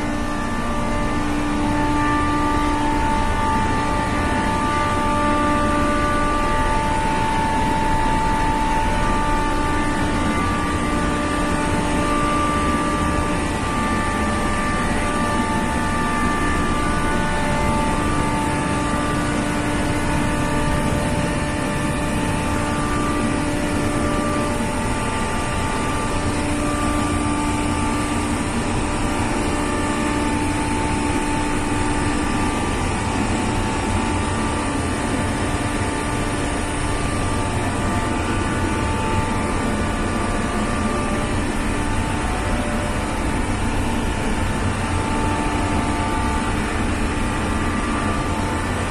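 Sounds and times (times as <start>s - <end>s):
pumps and compressor running: 0.0s - 48.9s
steady hum tones: 0.0s - 48.9s.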